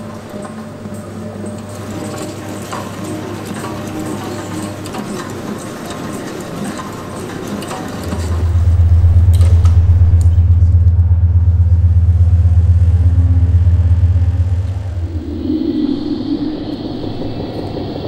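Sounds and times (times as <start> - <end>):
busy metallic clatter: 0.0 - 14.9
deep low-frequency drone: 7.6 - 18.0.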